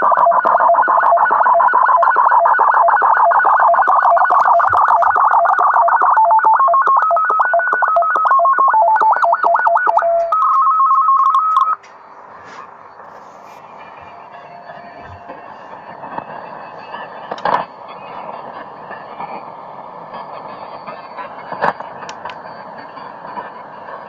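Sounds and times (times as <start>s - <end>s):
radio data transmission tones: 0.0s - 11.9s
faint radio band noise: 0.0s - 24.0s.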